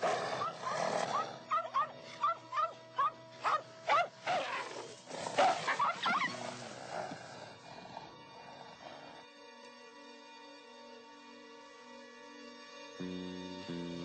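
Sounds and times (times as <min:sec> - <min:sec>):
background music: 0:00.0 - 0:14.0
dog barking and yelping: 0:00.4 - 0:04.6, 0:05.4 - 0:06.4.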